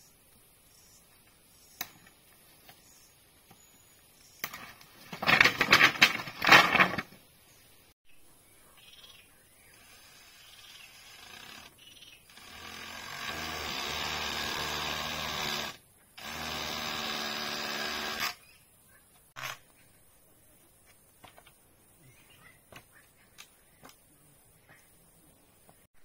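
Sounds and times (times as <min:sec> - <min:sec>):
small power tool motor running: 0:09.9 - 0:18.4.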